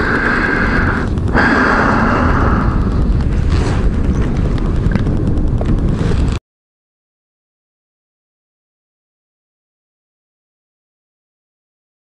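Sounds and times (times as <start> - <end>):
strong wind buffeting microphone: 0.0 - 6.4.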